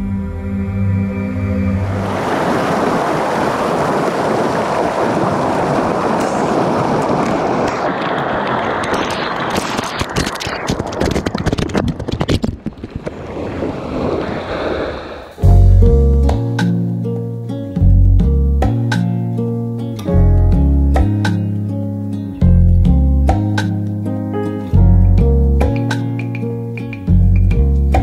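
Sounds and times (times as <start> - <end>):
stream rushing over rocks: 2.0 - 15.4
sharp crackles: 5.3 - 15.5.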